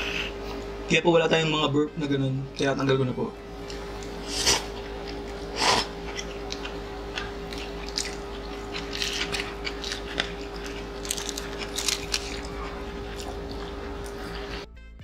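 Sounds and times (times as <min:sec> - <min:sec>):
low hum: 0:00.0 - 0:15.0
lettuce crunching: 0:03.6 - 0:14.6
wet chewing: 0:03.6 - 0:14.7
noodles slurping: 0:04.2 - 0:14.7.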